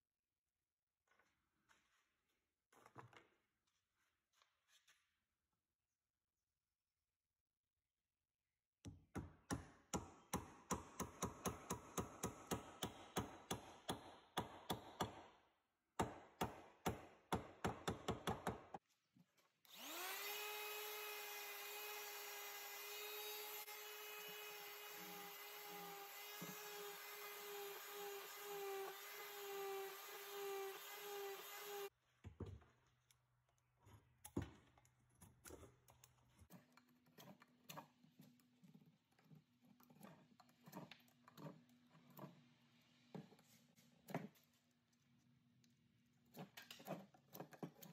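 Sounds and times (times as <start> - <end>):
electric orbital sander: 19.7 - 31.9
hand-tool strokes on wood: 19.7 - 31.9.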